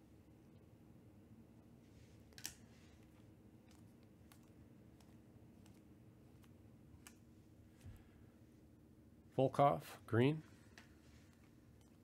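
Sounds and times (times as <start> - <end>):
low steady hum: 0.0 - 12.0
cards sliding with faint clicks: 2.0 - 7.3.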